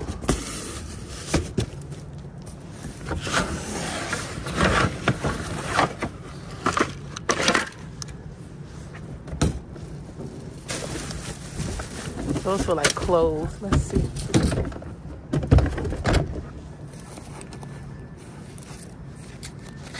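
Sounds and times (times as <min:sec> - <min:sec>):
cardboard scraping and rustling: 0:02.7 - 0:07.6.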